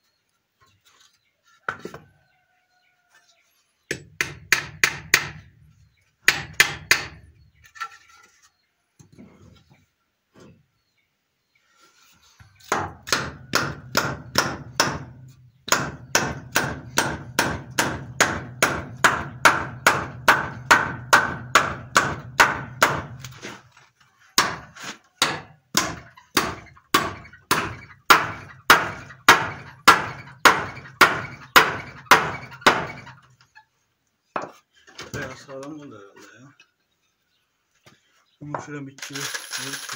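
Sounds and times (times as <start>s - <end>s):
hammer driving nails into wood: 3.9s - 5.4s, 6.2s - 7.2s, 12.7s - 23.4s, 24.4s - 33.1s.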